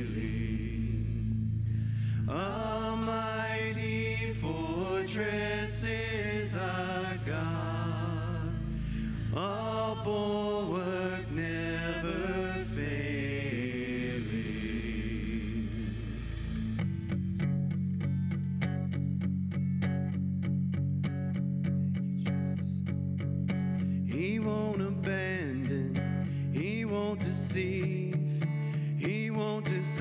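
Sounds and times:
man singing into a microphone: 0:00.0 - 0:01.4, 0:02.3 - 0:08.7, 0:09.3 - 0:16.4, 0:24.0 - 0:30.0
sustained low backing chords: 0:00.0 - 0:29.2.

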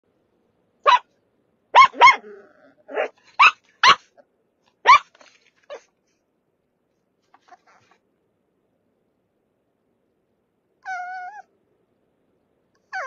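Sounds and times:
dog yapping: 0:00.8 - 0:01.1, 0:01.7 - 0:04.2, 0:04.8 - 0:05.9, 0:07.4 - 0:08.0, 0:10.8 - 0:11.5.

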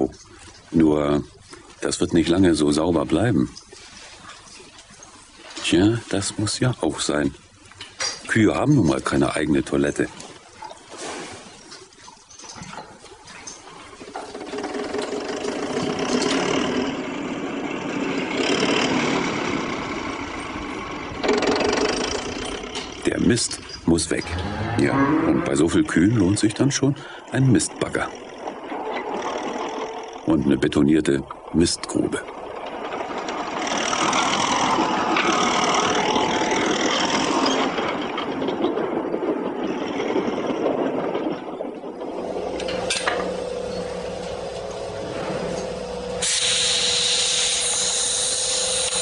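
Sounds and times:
farm machine engine running: 0:42.0 - 0:49.0.

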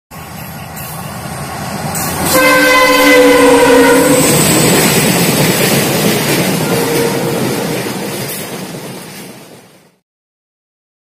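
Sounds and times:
approaching train rumble: 0:00.1 - 0:10.0
locomotive horn: 0:02.2 - 0:04.4, 0:06.6 - 0:07.7.

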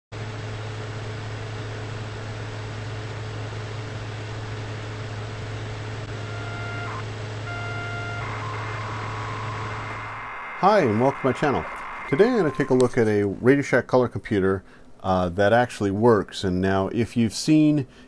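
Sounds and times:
low electrical hum with hiss: 0:00.4 - 0:18.0
faint pitched tone: 0:06.1 - 0:13.2.

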